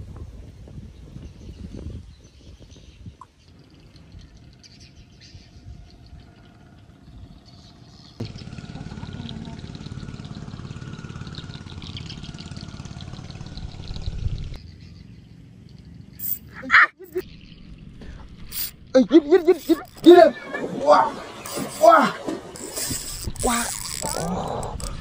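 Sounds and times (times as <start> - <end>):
fishing reel whirring: 18.4 - 25.0.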